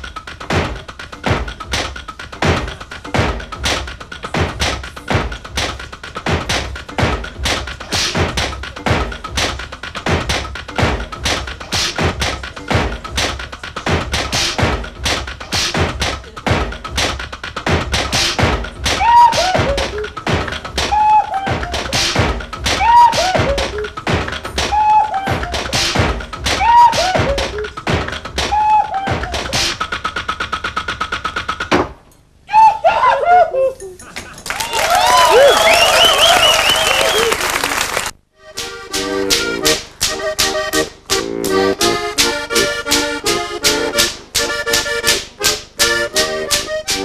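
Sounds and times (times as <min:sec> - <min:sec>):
slapping rhythm of thunks and taps: 0:00.0 - 0:32.1, 0:38.0 - 0:47.0.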